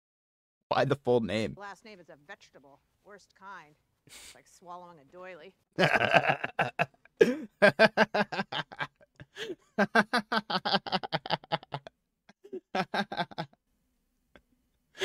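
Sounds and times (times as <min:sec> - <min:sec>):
man laughing hard: 0:05.8 - 0:13.6.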